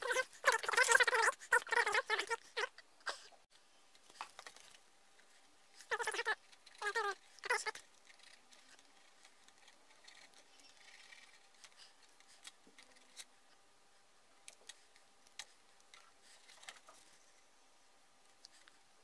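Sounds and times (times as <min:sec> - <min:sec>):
pen scratching on plastic: 0:05.8 - 0:13.3.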